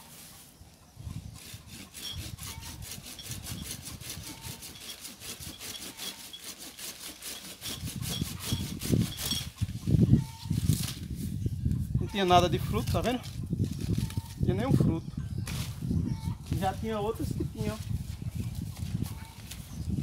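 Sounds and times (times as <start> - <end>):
hand saw cutting branch: 1.1 - 9.8.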